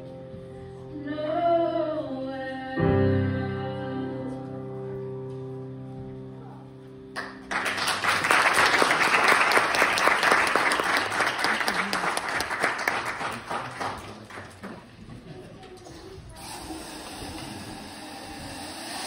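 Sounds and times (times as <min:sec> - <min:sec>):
audience clapping: 0:07.2 - 0:15.0.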